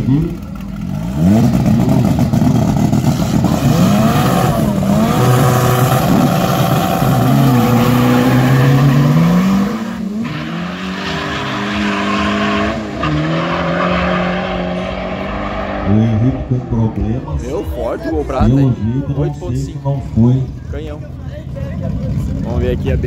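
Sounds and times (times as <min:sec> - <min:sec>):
cars accelerating through gears: 0:00.0 - 0:17.8
drag car engines revving: 0:00.0 - 0:23.0.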